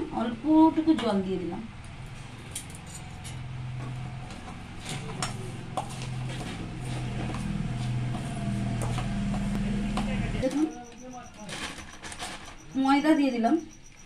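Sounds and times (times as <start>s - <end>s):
bangles clinking against metal bowl: 2.5s - 3.6s.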